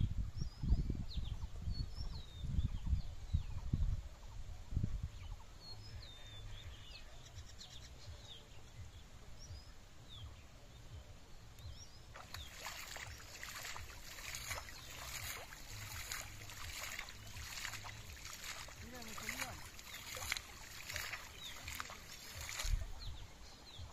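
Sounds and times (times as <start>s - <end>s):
small birds chirping: 5.3s - 23.9s
pond water sloshing and splashing: 11.9s - 23.9s.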